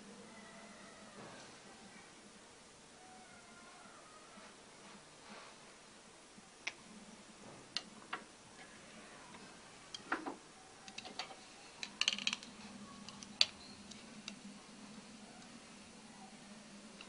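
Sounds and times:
small objects clicking and tapping: 9.9 - 14.5.

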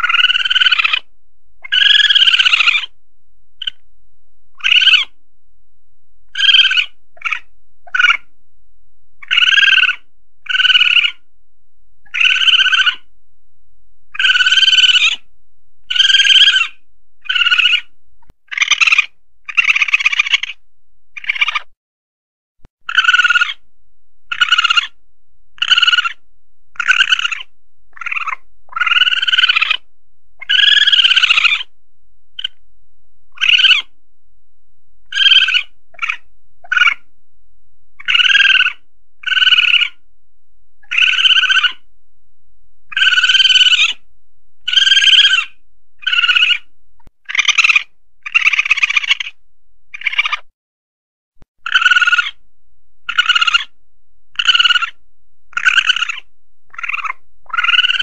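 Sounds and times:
civet calls: 0.0 - 3.0, 3.6 - 3.8, 4.5 - 5.2, 6.3 - 8.3, 9.2 - 11.3, 12.0 - 13.1, 14.1 - 21.8, 22.8 - 25.0, 25.6 - 31.7, 32.4 - 32.6, 33.3 - 34.0, 35.0 - 37.1, 38.0 - 40.0, 40.8 - 41.9, 42.9 - 44.0, 44.6 - 50.5, 51.6 - 52.4, 53.0 - 58.0.

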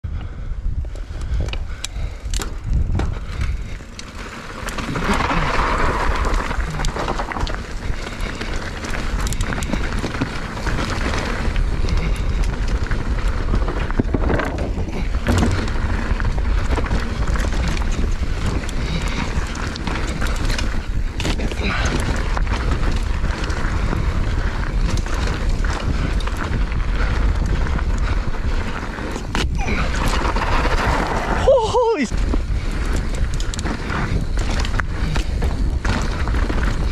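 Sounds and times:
wind buffeting microphone: 0.0 - 36.9
tyres rumbling on dirt: 1.6 - 36.9
bike knocking over bumps: 4.0 - 28.4.

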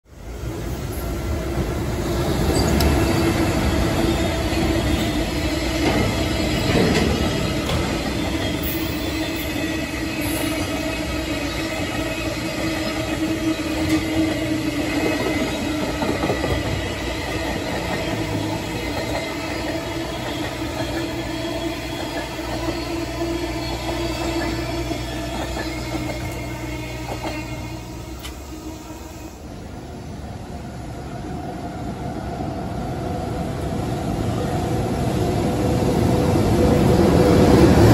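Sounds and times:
freight train wheels clattering on rails: 1.6 - 28.4.

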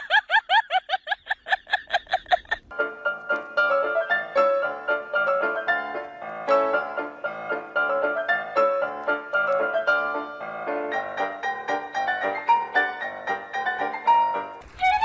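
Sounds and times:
high laugh-like calls: 0.0 - 2.7
bouncy piano music: 2.4 - 15.0.

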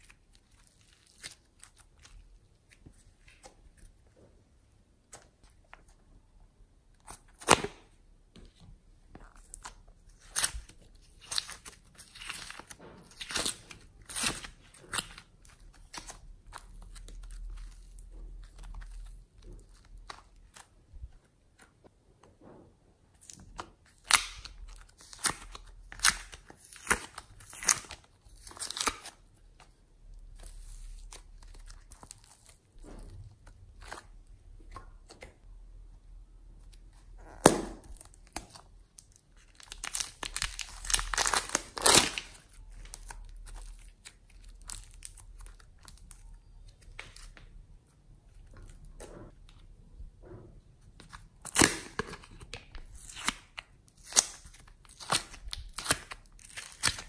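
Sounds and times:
plastic film crinkling and tearing: 9.3 - 20.8, 23.2 - 34.2, 36.7 - 47.5, 51.0 - 57.0.

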